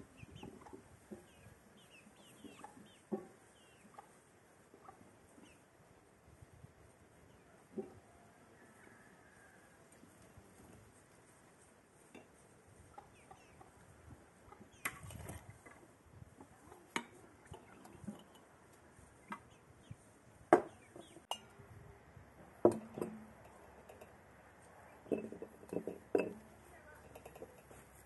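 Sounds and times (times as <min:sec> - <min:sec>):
glass jar and bowls clinking: 0:27.0 - 0:27.8.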